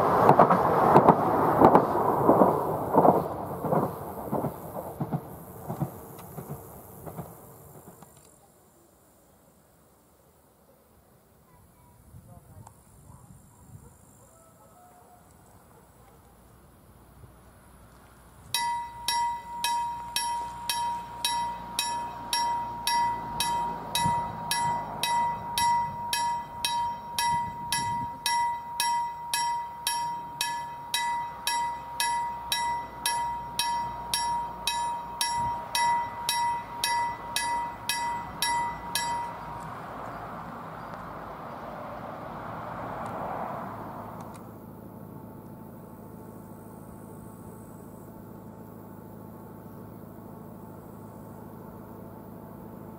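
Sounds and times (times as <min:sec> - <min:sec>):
level crossing warning bell: 0:18.6 - 0:40.3.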